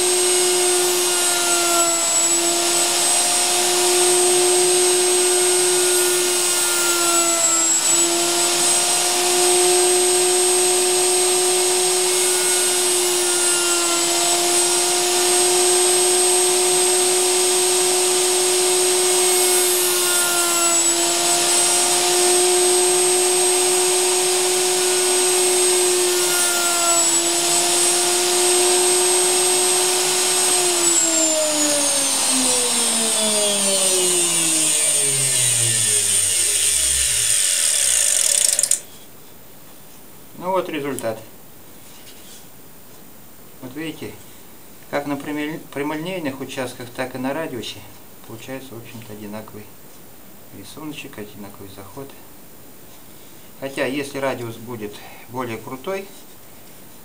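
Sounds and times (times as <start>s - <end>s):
electric router cutting wood: 0.0s - 38.9s.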